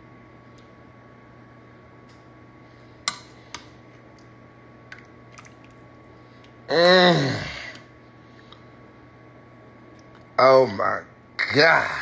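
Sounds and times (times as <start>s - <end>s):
person's drawn-out vocal sound: 6.7s - 7.8s.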